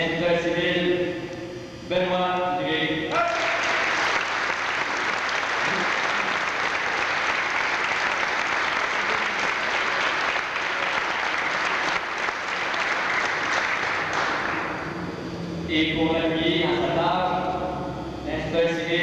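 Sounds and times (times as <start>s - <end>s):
audience clapping: 3.1s - 14.8s.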